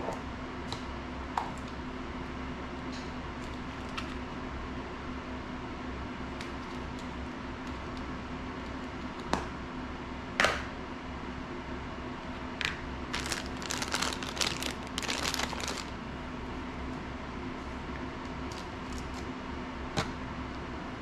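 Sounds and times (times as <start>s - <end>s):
steady low hum: 0.0s - 21.0s
plastic bag crinkling: 13.1s - 16.0s.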